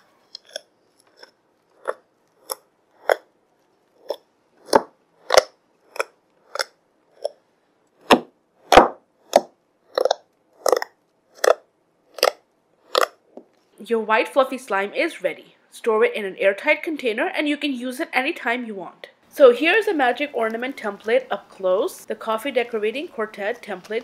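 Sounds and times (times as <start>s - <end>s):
slime squishing by hand: 8.0s - 13.5s.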